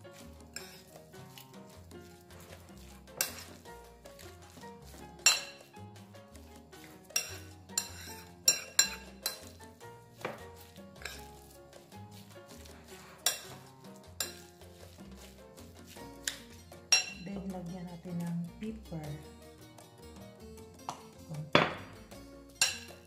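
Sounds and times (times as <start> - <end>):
background music with low notes: 0.0 - 23.0
metal spoon clinking on plate: 5.2 - 5.7, 7.1 - 9.6, 13.2 - 13.5, 16.2 - 17.2, 22.6 - 23.0.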